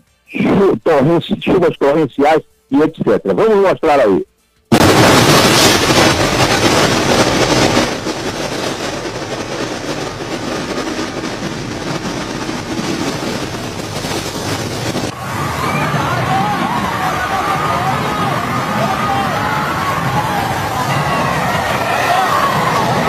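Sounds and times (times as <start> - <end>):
heavy rain: 4.7 - 23.0
strong storm wind: 4.7 - 23.0.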